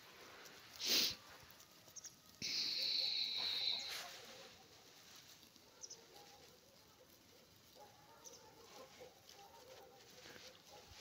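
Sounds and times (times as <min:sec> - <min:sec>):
goose hissing: 0:00.7 - 0:01.3, 0:02.4 - 0:04.3
geese calling softly: 0:01.2 - 0:11.0.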